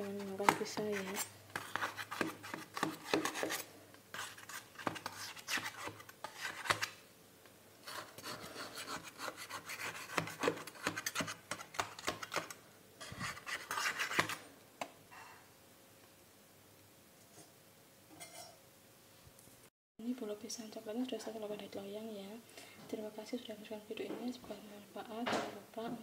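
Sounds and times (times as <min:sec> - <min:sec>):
knife scraping metal cake pan: 0:00.0 - 0:06.9, 0:07.8 - 0:14.4.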